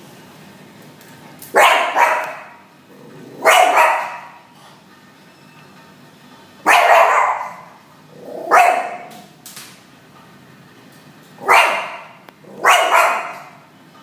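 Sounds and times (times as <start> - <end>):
small dog barking: 1.5 - 2.6, 3.4 - 4.4, 6.6 - 7.8, 8.4 - 9.2, 11.4 - 13.6.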